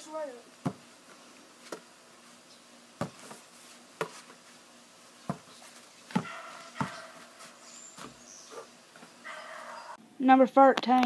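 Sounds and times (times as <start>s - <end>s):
basketball bouncing on hard ground: 0.6s - 0.8s, 3.0s - 3.4s, 4.0s - 4.3s, 5.2s - 5.5s, 6.1s - 7.4s.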